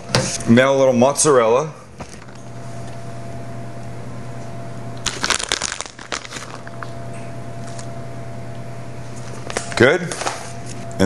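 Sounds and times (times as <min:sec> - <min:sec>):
steady low hum: 0:00.0 - 0:11.0
cheese rustling onto bread: 0:05.0 - 0:06.9.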